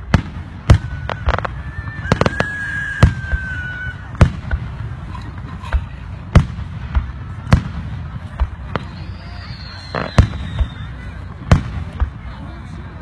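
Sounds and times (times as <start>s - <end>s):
long high firework whistle: 0.4s - 4.3s, 8.6s - 11.5s.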